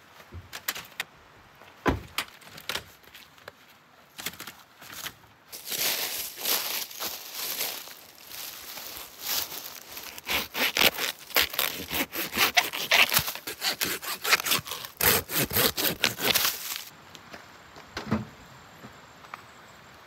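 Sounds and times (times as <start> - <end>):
hand saw cutting wooden branch: 9.4 - 16.9.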